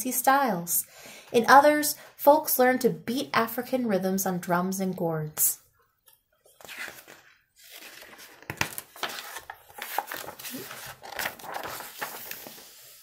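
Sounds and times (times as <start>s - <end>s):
paper pages rustling: 6.4s - 13.0s
sharp paper crackles: 6.6s - 13.0s.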